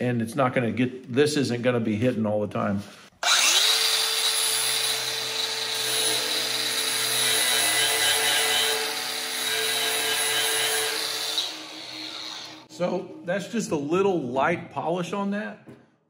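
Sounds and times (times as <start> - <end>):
angle grinder grinding metal: 3.2 - 12.7.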